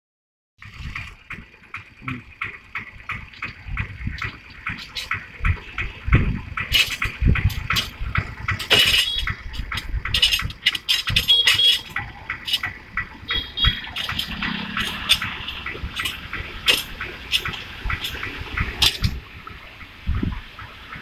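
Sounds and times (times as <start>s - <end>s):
tractor engine knocking: 0.6s - 21.0s.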